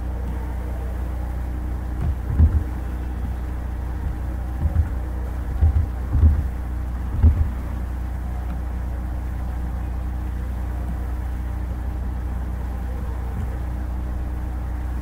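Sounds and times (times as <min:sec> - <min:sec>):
low background hum: 0:00.0 - 0:15.0
low thump: 0:02.0 - 0:03.4, 0:04.0 - 0:07.6.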